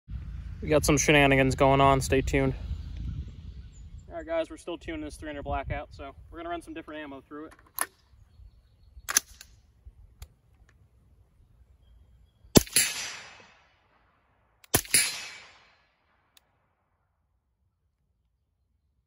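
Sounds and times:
sharp click: 7.5 - 8.1, 9.1 - 9.6
suppressed rifle shots: 9.0 - 9.6, 12.5 - 16.4.

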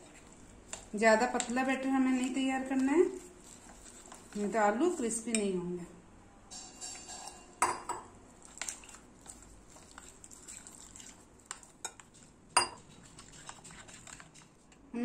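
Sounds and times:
spoon stirring batter in glass bowl: 0.0 - 5.6, 6.5 - 14.9.

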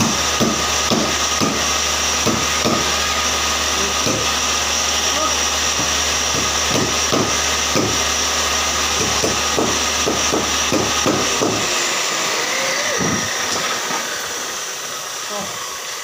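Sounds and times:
woodshop machinery humming: 0.0 - 16.0
repeated knocks: 5.7 - 8.0, 9.0 - 11.8.

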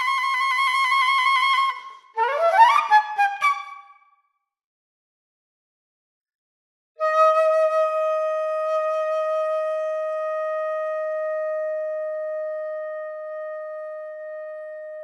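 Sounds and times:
flute holding long note: 7.0 - 15.0.

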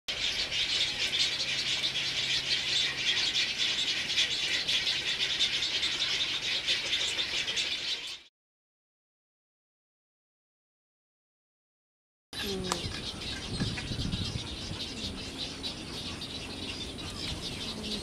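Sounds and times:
chorus of birds calling: 0.1 - 8.3, 12.4 - 18.0.

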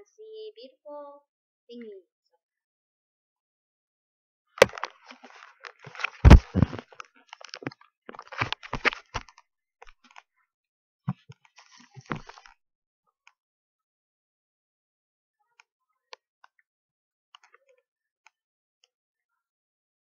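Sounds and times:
doll being handled: 4.6 - 9.3
heavy thump: 6.3 - 6.8.

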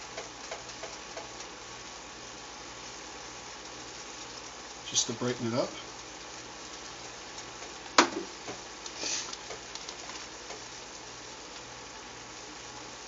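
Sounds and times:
pan sizzling faintly: 0.0 - 13.0
sharp knock: 8.0 - 8.3
brief louder hiss: 9.0 - 9.3.

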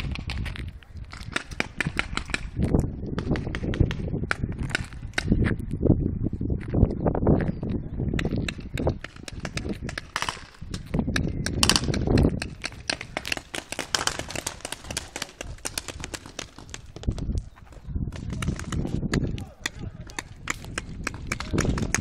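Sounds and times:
low rumble on microphone: 0.0 - 13.2.

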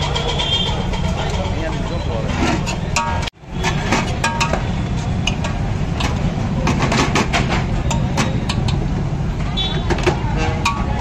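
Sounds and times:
steel spoon scraping steel pot: 0.0 - 4.6
road traffic rumble: 0.0 - 11.0.

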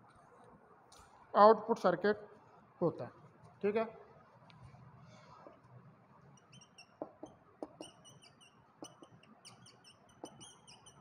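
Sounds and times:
marker squeaking on whiteboard: 5.3 - 11.0
marker tip tapping board: 6.5 - 11.0.

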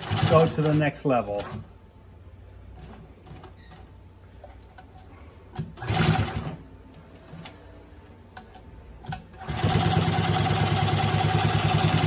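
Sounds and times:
sewing machine stitching: 0.0 - 1.6, 5.6 - 6.6, 9.1 - 12.0
low steady hum: 0.0 - 10.1.

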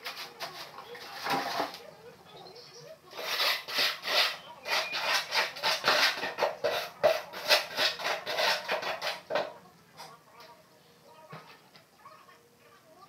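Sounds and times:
hand scraping tile: 0.0 - 1.8, 3.1 - 9.5.

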